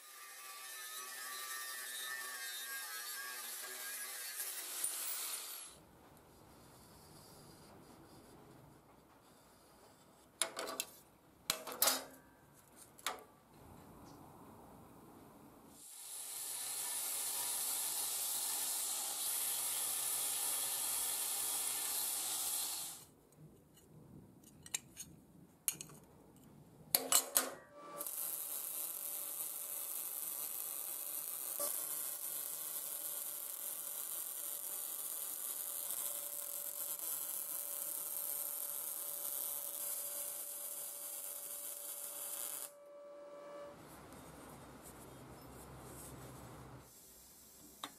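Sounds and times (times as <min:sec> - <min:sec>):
welding arc: 0:15.8 - 0:23.1, 0:28.0 - 0:42.8.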